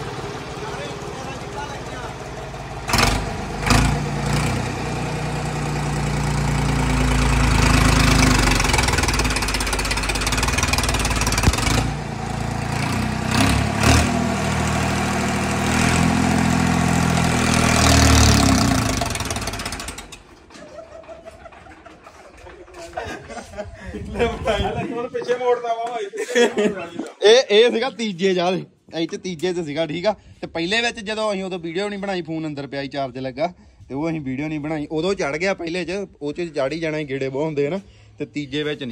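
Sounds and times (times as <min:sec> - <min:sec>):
tractor engine revving hard: 0:00.0 - 0:20.5.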